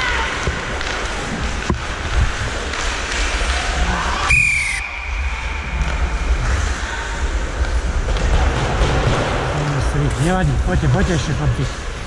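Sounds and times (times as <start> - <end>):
rink noise with low rumble: 0.0 - 12.0
referee's whistle blast: 4.3 - 5.2.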